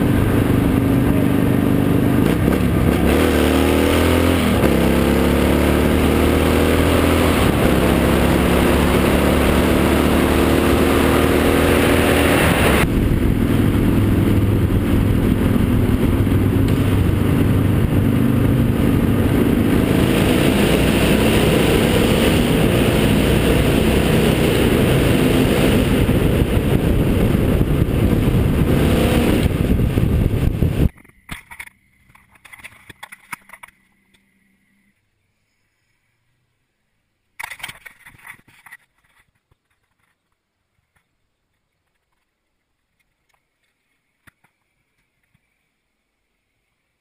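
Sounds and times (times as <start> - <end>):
motorcycle engine accelerating: 0.0 - 30.9
wind noise: 0.0 - 31.6.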